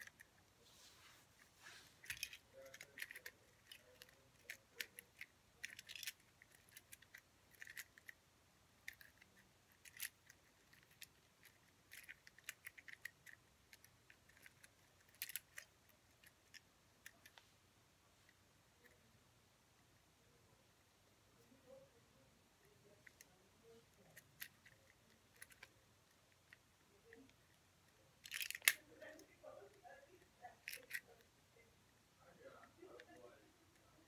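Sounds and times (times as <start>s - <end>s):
puzzle cube clicking: 2.0s - 8.2s, 8.8s - 17.4s, 24.0s - 27.5s, 28.2s - 28.8s.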